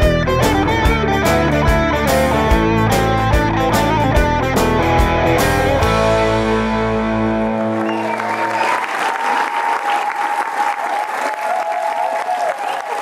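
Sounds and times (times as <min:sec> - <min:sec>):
band chord with guitar: 0:00.0 - 0:08.2
audience applauding: 0:07.0 - 0:13.0.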